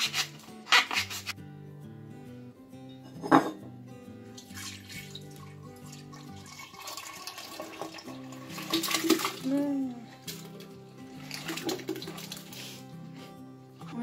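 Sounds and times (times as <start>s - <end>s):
milk pouring into a jug: 4.4s - 9.4s, 11.1s - 12.5s.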